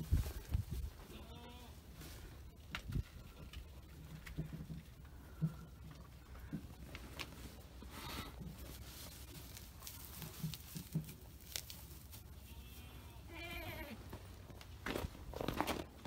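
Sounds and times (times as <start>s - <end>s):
goat bleating: 1.0s - 1.8s, 12.4s - 14.0s
thuds and rustles in straw: 6.6s - 12.7s.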